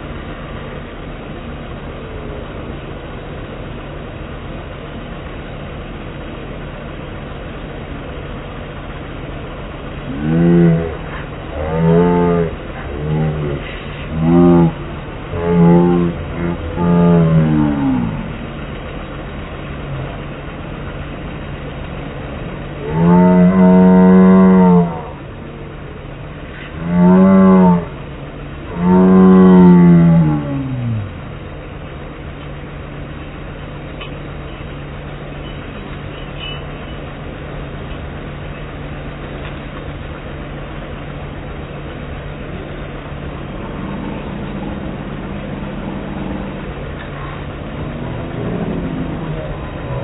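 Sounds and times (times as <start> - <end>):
steady low hum: 0.0 - 50.0
slowed-down deep voices calling: 9.9 - 20.7, 22.6 - 32.1, 40.4 - 50.0.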